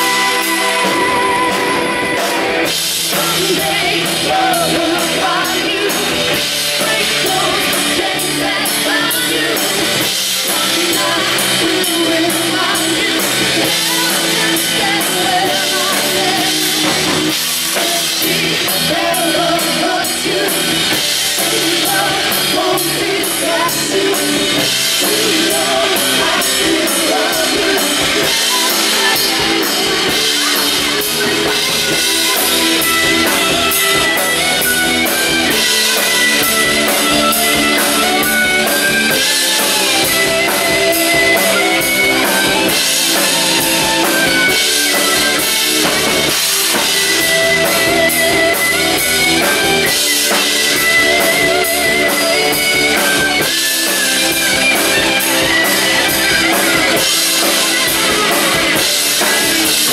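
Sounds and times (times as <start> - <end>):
woman singing: 0.0 - 34.2, 54.8 - 59.9
drum kit: 0.0 - 59.9
electric guitars: 0.0 - 59.9.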